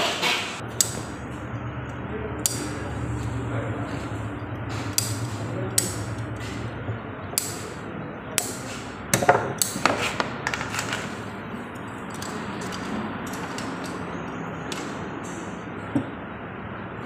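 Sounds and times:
pipe cutter clicking: 0:00.8 - 0:01.1, 0:02.4 - 0:02.8, 0:04.8 - 0:06.5.

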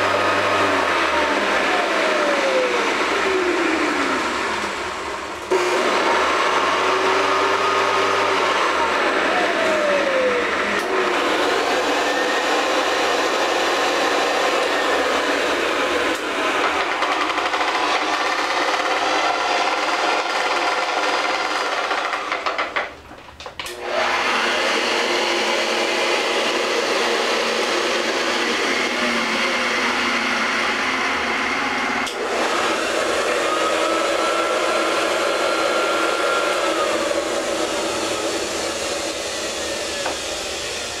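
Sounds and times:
vacuum cleaner motors whining: 0:00.0 - 0:41.0.

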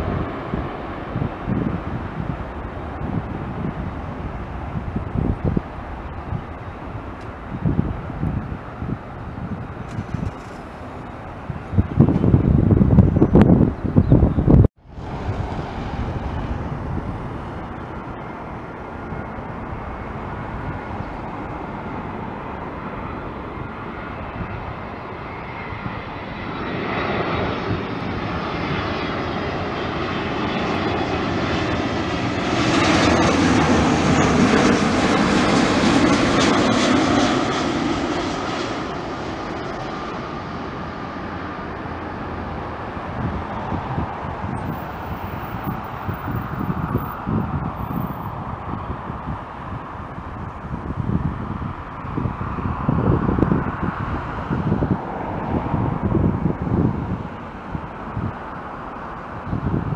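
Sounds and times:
jet plane engines rushing: 0:00.0 - 0:59.9.

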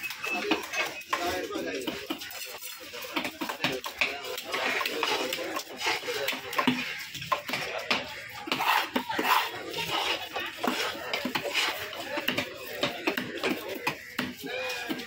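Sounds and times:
cleaver chopping fish on wood: 0:12.2 - 0:15.0.

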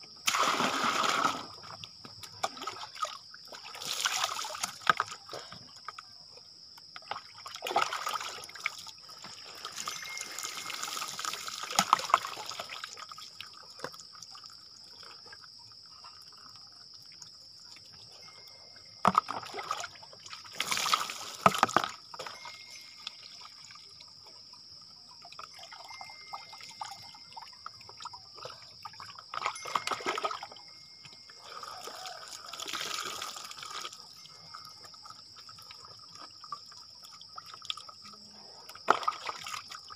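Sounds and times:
water splashing on a person: 0:00.2 - 0:01.8, 0:02.4 - 0:05.4, 0:07.1 - 0:14.0, 0:19.1 - 0:22.0, 0:31.6 - 0:34.2
water trickling and dripping: 0:00.4 - 0:39.9.

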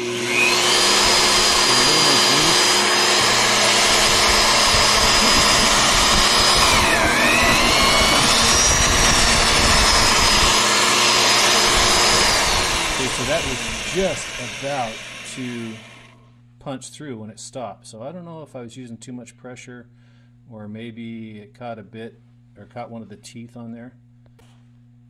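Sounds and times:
magnetic drill motor whining: 0:00.0 - 0:16.2.

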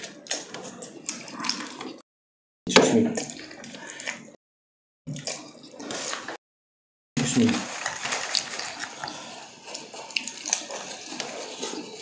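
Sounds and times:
wet chewing and slurping: 0:00.0 - 0:02.0, 0:05.1 - 0:06.4, 0:07.2 - 0:12.0.

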